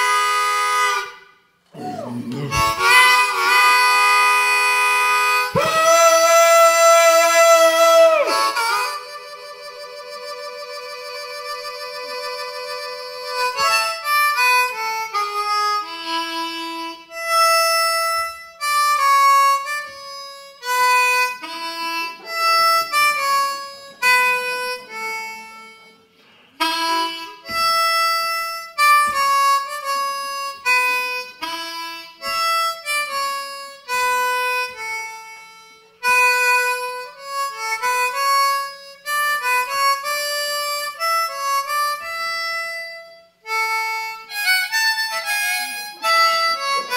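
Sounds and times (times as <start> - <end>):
blues harmonica: 0.0 - 46.9.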